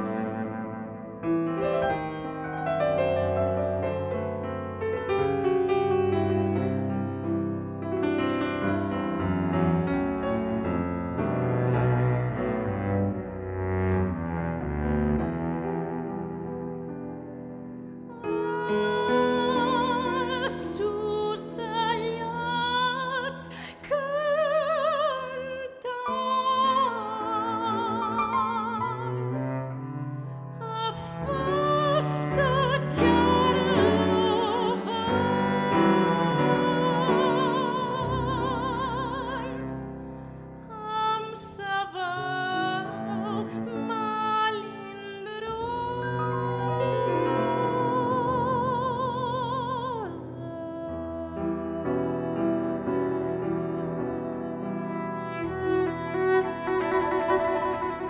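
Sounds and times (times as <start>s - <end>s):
bowed cello low notes: 0.0s - 23.4s, 26.2s - 58.0s
soprano singing folk melody: 18.0s - 29.4s, 30.5s - 58.0s.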